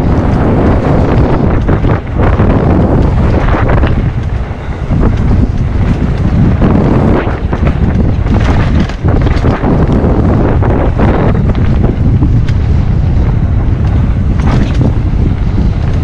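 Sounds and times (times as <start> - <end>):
bike knocks and rattles: 0.0 - 16.0
bike tyres rumbling: 0.0 - 16.0
wind buffeting microphone: 0.0 - 16.0.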